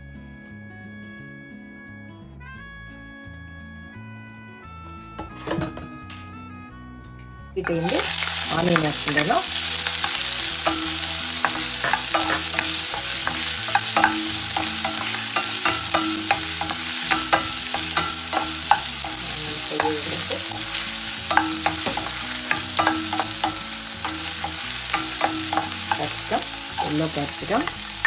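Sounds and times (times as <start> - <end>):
onions sizzling in oil: 7.6 - 28.0
spatula scraping pan: 7.7 - 28.0.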